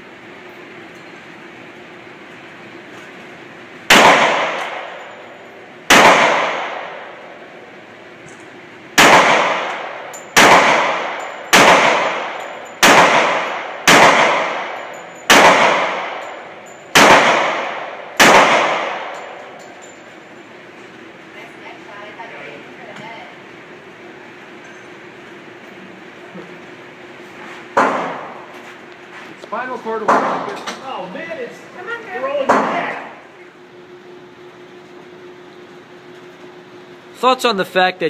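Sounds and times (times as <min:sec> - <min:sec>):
handgun shots echoing indoors: 0:03.9 - 0:05.0, 0:05.9 - 0:07.1, 0:09.0 - 0:19.4.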